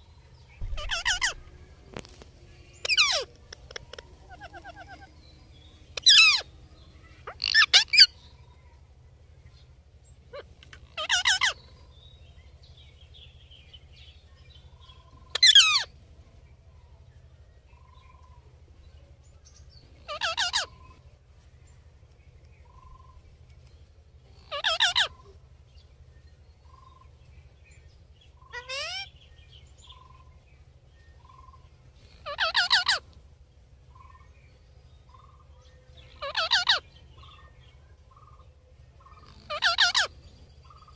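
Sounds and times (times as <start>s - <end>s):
parakeets screeching: 0.6s - 1.7s, 2.8s - 5.2s, 6.0s - 6.5s, 7.2s - 8.2s, 10.3s - 11.7s, 15.2s - 15.9s, 20.0s - 21.0s, 24.3s - 25.2s, 28.4s - 29.1s, 31.2s - 33.1s, 36.0s - 37.4s, 39.0s - 40.9s.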